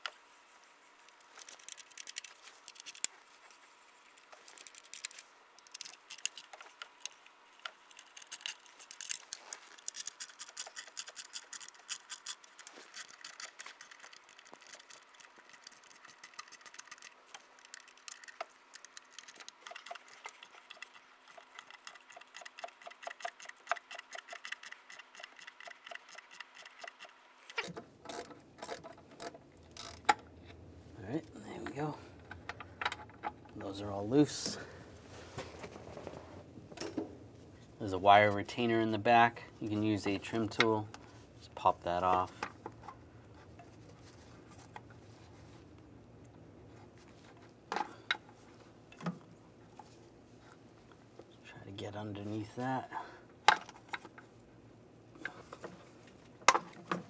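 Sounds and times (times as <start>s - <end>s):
hand ratchet clicking: 9.8s - 30.2s.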